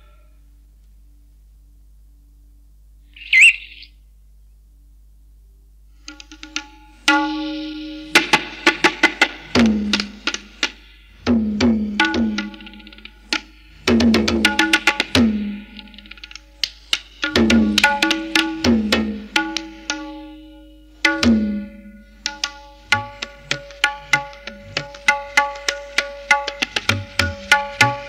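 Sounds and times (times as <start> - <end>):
tabla drumming: 6.1 - 28.0.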